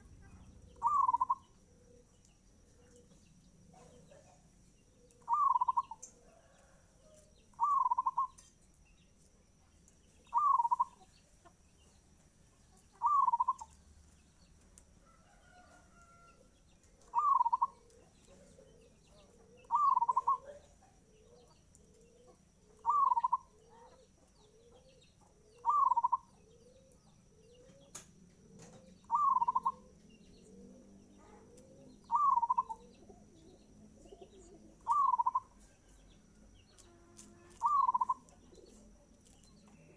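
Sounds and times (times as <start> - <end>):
dove cooing: 0.0 - 6.8, 7.5 - 8.4, 10.2 - 11.0, 12.9 - 13.8, 17.0 - 35.6, 37.5 - 39.0.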